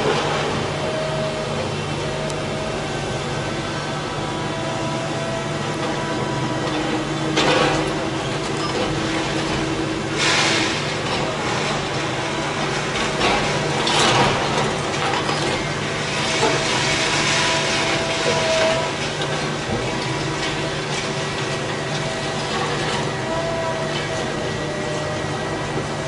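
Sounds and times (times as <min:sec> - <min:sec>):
excavator engine running: 0:00.0 - 0:26.0
excavator attachment crunching: 0:05.7 - 0:24.5.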